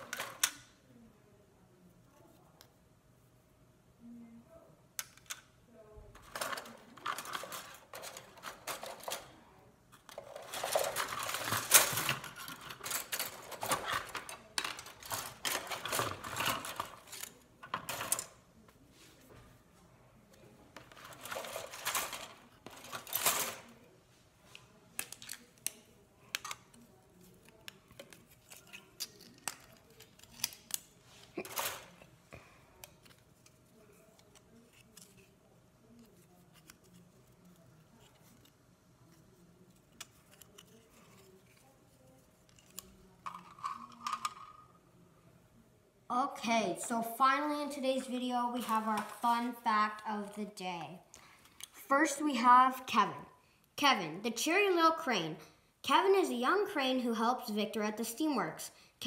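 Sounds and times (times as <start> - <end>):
plastic parts clattering: 6.2 - 18.4, 20.8 - 23.8, 27.4 - 32.1, 42.4 - 44.8.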